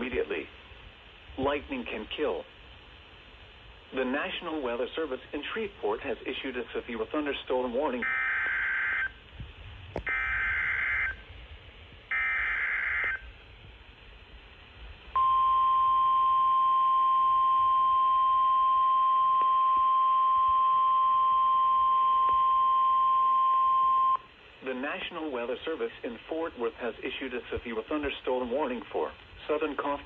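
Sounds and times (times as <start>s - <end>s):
steady warning alarm tone: 8.0s - 9.2s, 10.1s - 11.2s, 12.1s - 13.2s, 15.2s - 24.3s.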